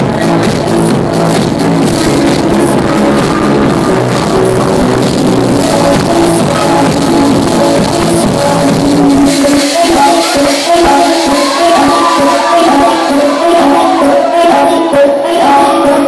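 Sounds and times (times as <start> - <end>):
techno music with steady beat: 0.0 - 16.0.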